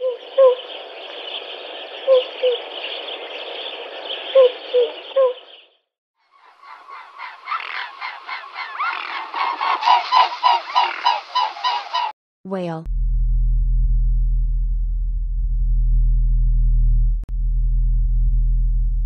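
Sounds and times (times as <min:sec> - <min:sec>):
waterfowl honking: 0:06.3 - 0:12.1.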